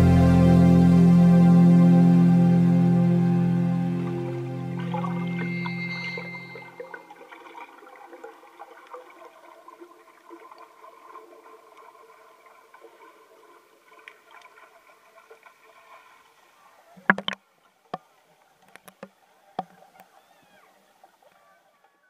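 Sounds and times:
song with held notes: 0.0s - 6.9s.

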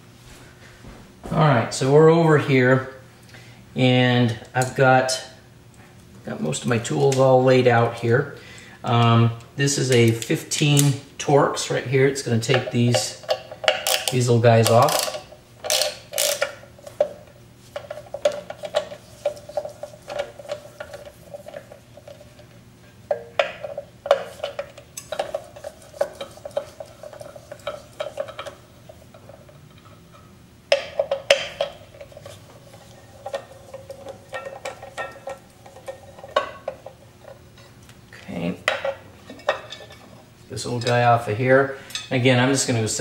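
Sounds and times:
hand ratchet clicking: 12.5s - 17.2s.

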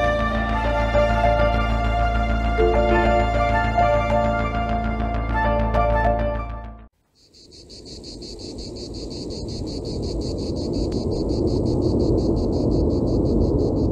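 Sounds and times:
music: 0.0s - 6.9s
high-pitched insect chirping: 7.1s - 13.9s.

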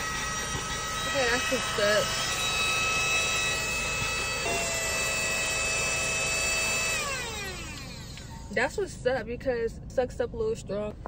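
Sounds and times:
vacuum motor whine: 0.0s - 8.7s.

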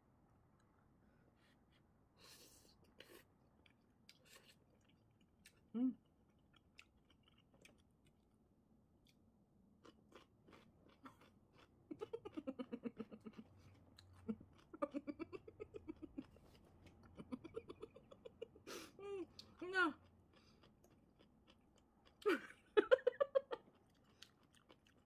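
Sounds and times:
person chewing food: 2.9s - 8.3s, 9.0s - 18.6s, 19.2s - 22.6s, 23.3s - 25.0s.

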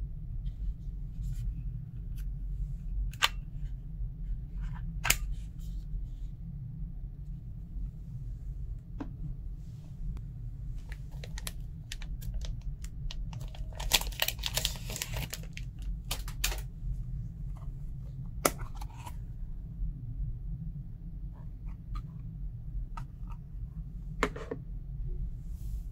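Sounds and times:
low hum: 0.0s - 25.9s
packaging crinkling and rattling: 10.8s - 16.7s.

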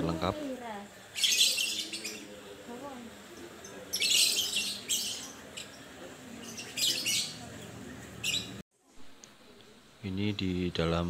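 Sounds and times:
birds chirping: 0.0s - 8.6s
faint murmur of voices: 0.0s - 10.3s.

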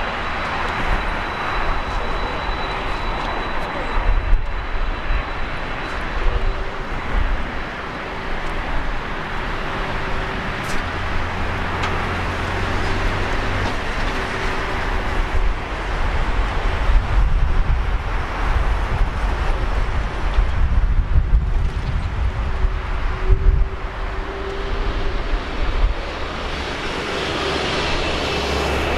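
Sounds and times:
jet engines rushing: 0.0s - 28.9s.

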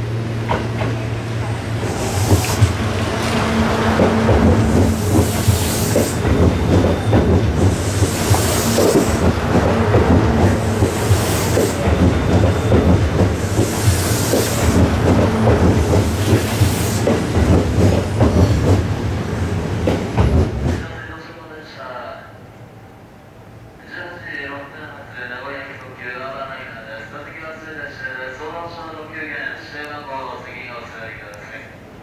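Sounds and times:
train rumble: 0.0s - 21.4s
high hiss: 1.6s - 3.0s
train wheels clattering: 1.7s - 19.0s, 19.7s - 20.9s.

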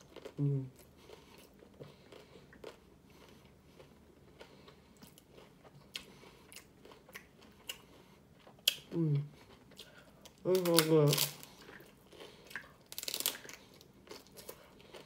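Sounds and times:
person chewing crunchy taco: 0.0s - 15.0s.

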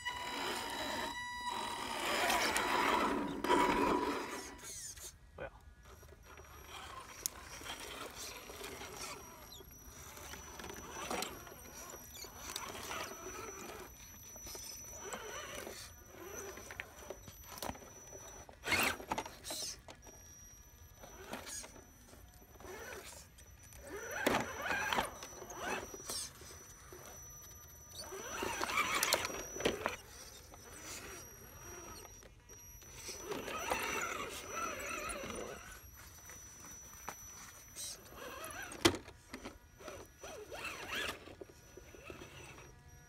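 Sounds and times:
electric motor whining: 0.0s - 5.1s, 5.8s - 43.0s.

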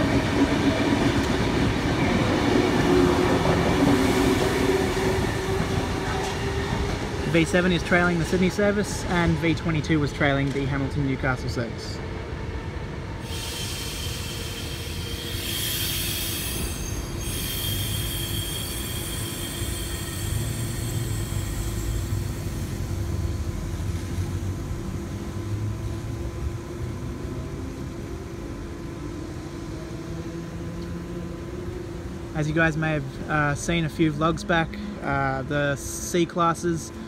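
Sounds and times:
train rumbling: 0.0s - 37.0s
train wheel squeal: 13.2s - 22.9s.

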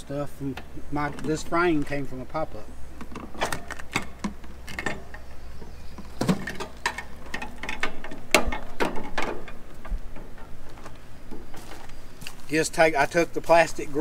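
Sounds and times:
sheet metal clicking and rattling: 6.2s - 11.5s.

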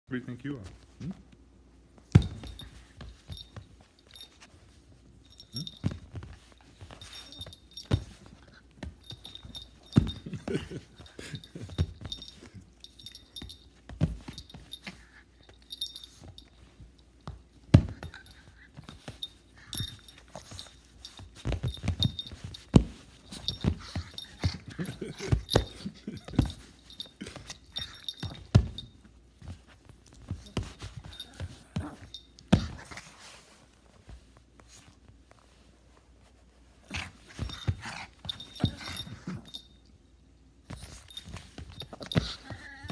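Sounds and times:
scuffles and bumps: 2.0s - 39.8s, 40.6s - 42.9s
dog collar tag jingling: 2.1s - 4.6s, 5.2s - 32.6s, 37.0s - 39.9s.

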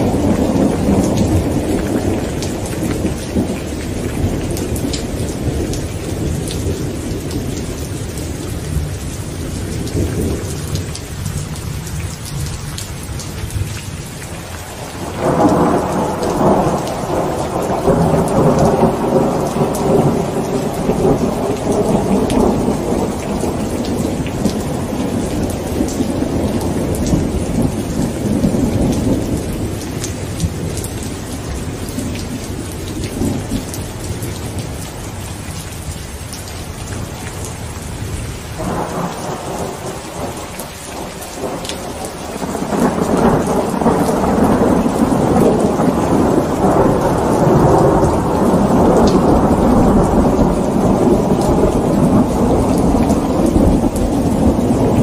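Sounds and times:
rolling thunder: 0.0s - 11.2s, 14.7s - 34.9s, 36.9s - 55.0s
rain on hard wet surface: 0.0s - 55.0s
raindrop ticks: 0.3s - 37.6s.

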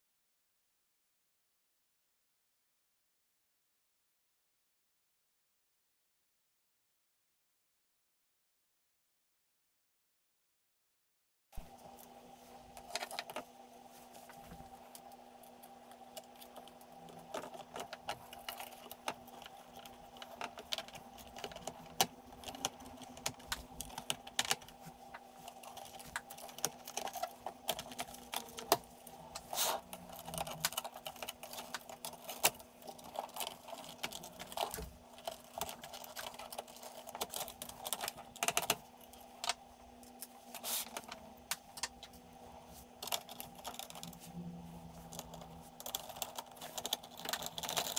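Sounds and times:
faint steady hum: 11.6s - 47.9s
plastic and metal parts clicking: 14.9s - 42.1s, 45.0s - 47.9s.

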